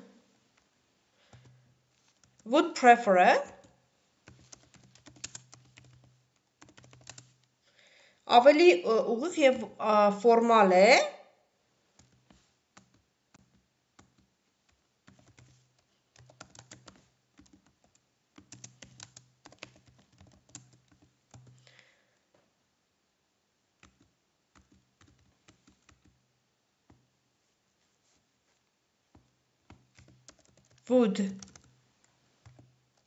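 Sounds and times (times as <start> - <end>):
faint keyboard typing: 0.6 - 2.6, 3.2 - 7.6, 11.9 - 21.9, 23.8 - 27.1, 28.1 - 33.0.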